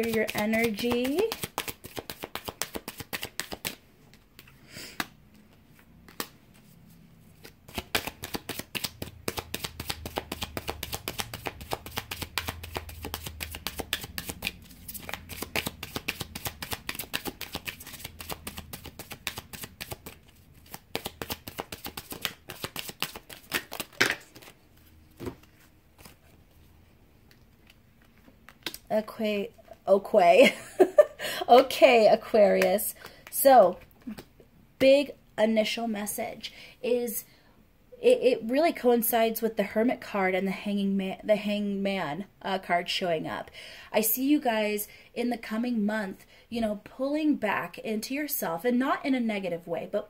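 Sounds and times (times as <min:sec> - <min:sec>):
cards being shuffled: 0:00.0 - 0:06.7, 0:07.3 - 0:26.6.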